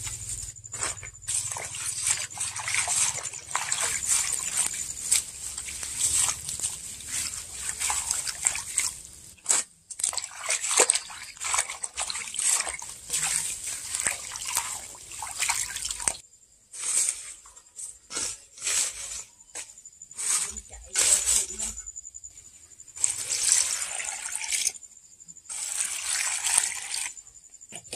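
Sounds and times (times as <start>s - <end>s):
water splashing in metal basin: 0.8s - 16.2s, 23.0s - 24.7s, 25.5s - 27.1s.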